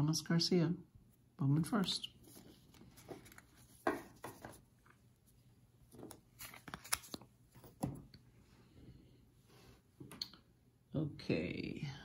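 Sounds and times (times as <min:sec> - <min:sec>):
cards rustling: 0:01.6 - 0:08.1.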